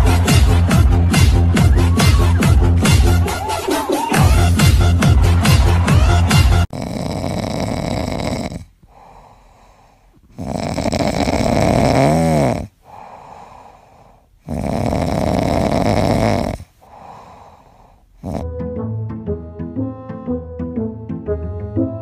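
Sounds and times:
puppy snoring: 6.6 - 13.8, 14.4 - 18.5.

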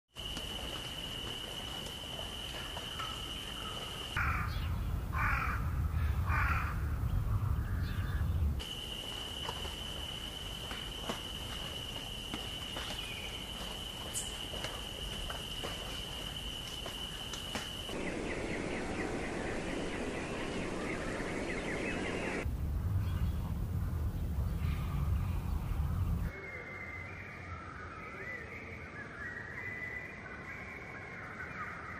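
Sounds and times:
harsh caw-like bird calls: 3.0 - 7.0
low rumble: 18.0 - 26.3.

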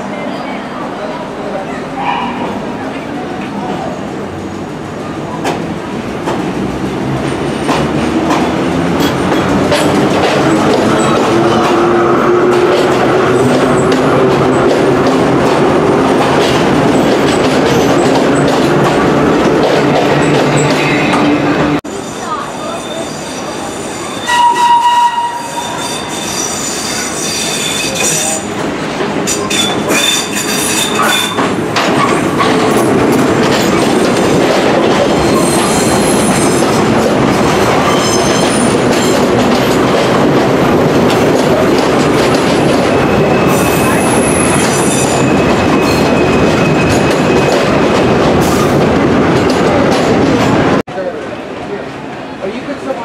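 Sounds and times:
train rumbling on steel track: 0.0 - 53.0
train wheels squealing: 21.9 - 28.4, 29.3 - 31.4, 35.2 - 36.7, 37.8 - 39.2.

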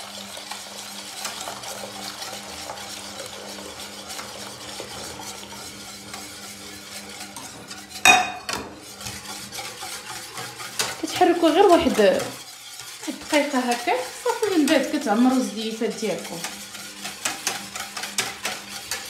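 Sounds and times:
milk pouring: 0.0 - 19.0
whisk swishing in a pot: 0.0 - 19.0
saucepan clanking on stone: 8.0 - 8.7.

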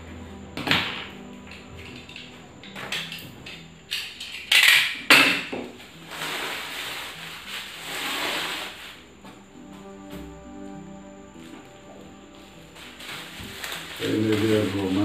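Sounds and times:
plastic wrap rustling: 5.7 - 9.0, 12.7 - 15.0
cardboard tube ripping: 6.0 - 9.0.

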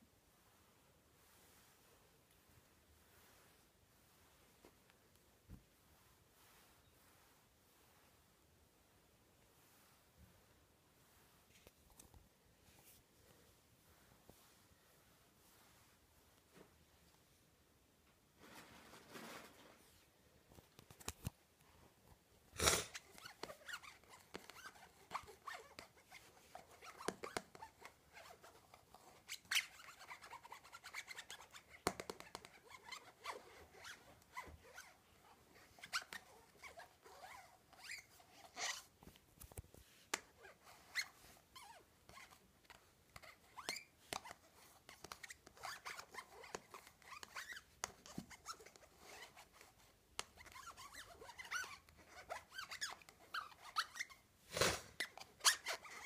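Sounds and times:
fingers scratching plastic cup: 22.6 - 35.0, 40.1 - 56.0.

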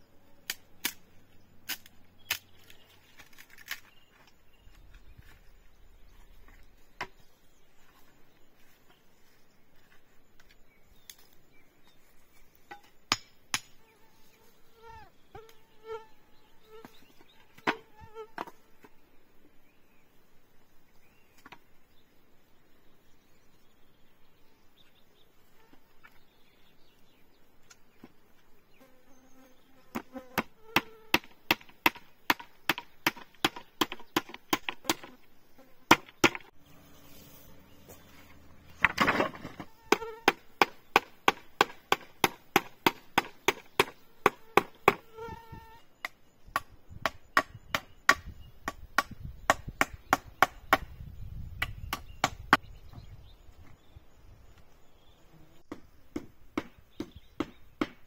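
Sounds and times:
tool strikes on wood: 12.7 - 13.8, 30.4 - 35.1, 39.9 - 45.0, 55.7 - 58.0.

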